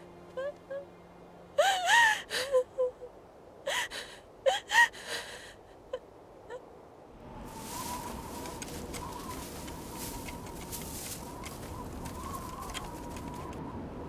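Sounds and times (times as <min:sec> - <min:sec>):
woman sobbing: 0:00.3 - 0:00.9, 0:01.6 - 0:06.7
steady hiss: 0:07.3 - 0:13.0.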